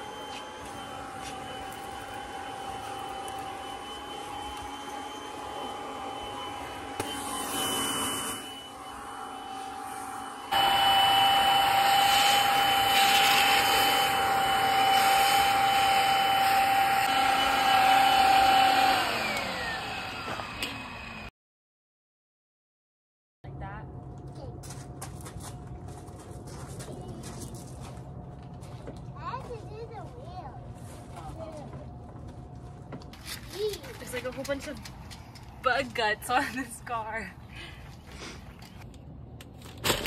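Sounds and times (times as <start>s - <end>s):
vacuum cleaner whine: 0.0s - 21.3s.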